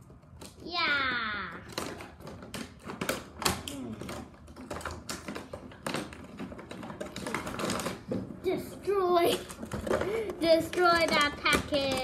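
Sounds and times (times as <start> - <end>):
plastic packaging snapping: 1.6 - 8.1.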